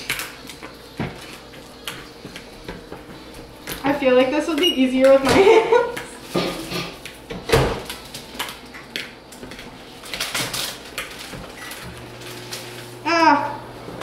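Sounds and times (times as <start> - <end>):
microwave oven humming: 0.0 - 14.0
kitchen clatter: 3.7 - 12.7.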